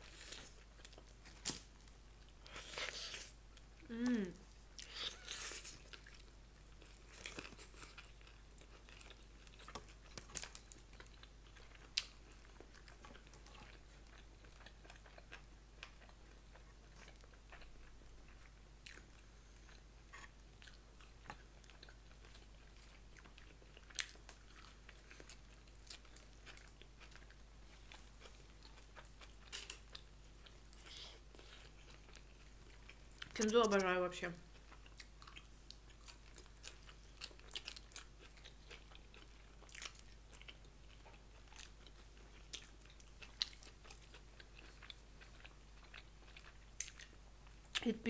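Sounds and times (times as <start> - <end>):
chewing and biting food: 4.4 - 33.9, 34.5 - 47.8.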